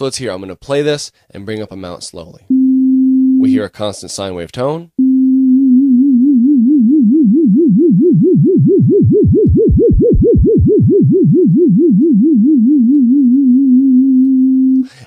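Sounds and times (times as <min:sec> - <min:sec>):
sine synthesizer tone with vibrato: 0:05.0 - 0:14.8.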